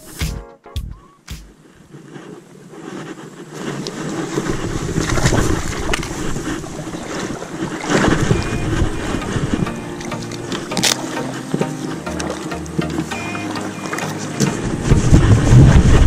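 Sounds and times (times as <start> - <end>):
wind buffeting microphone: 3.7 - 9.7, 14.4 - 16.0
water splashing: 4.0 - 16.0
sharp clicks: 10.0 - 11.3.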